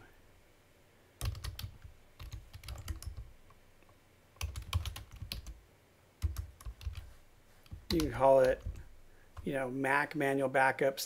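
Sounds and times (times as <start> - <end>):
typing on computer keyboard: 1.2 - 3.3, 4.4 - 5.6, 6.2 - 7.1, 7.7 - 9.5.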